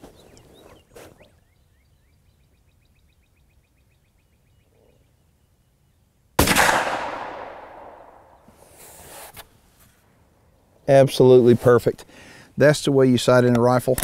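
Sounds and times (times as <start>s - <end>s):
suppressed rifle shot: 6.4s - 8.4s.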